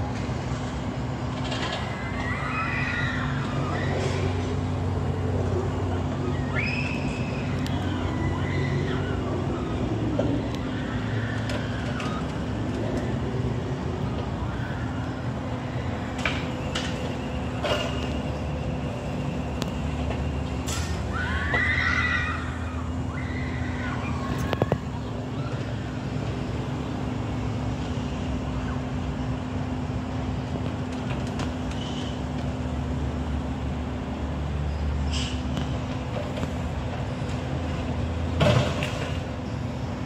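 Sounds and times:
diesel machinery droning: 0.0 - 40.0
high-pitched squeal: 5.7 - 12.5.

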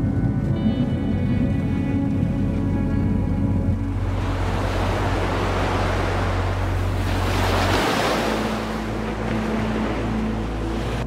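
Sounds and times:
small waves washing onto beach: 4.0 - 11.0.

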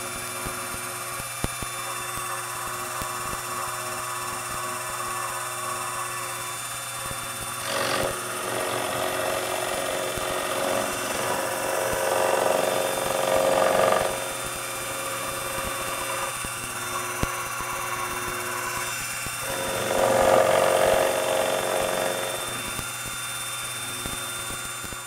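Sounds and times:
milling machine cutting metal: 2.0 - 23.2.

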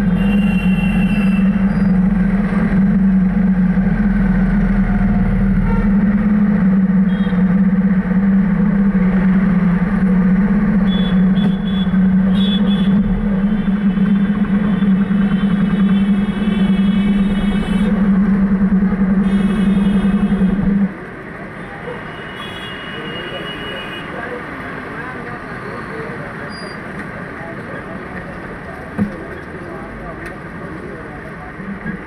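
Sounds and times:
wavering pitched tone: 0.0 - 20.9
vehicle engine low hum: 0.0 - 21.4.

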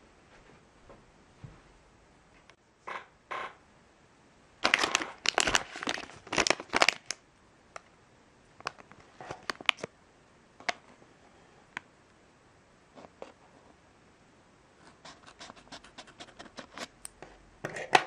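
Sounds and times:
plastic bag crinkling: 4.6 - 7.2, 8.6 - 9.9.

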